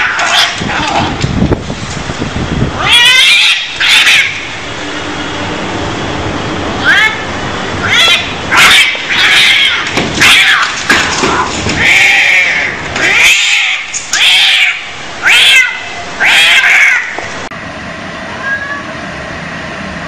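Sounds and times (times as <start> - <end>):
cats yowling: 0.0 - 1.2, 2.8 - 4.5, 6.8 - 17.2, 18.3 - 19.0.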